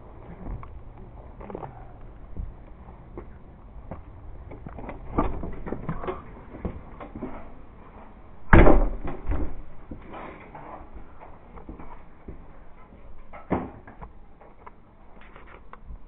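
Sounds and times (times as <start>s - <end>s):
bumps and knocks at door: 8.5s - 9.7s
door shutting with thud: 8.5s - 9.7s.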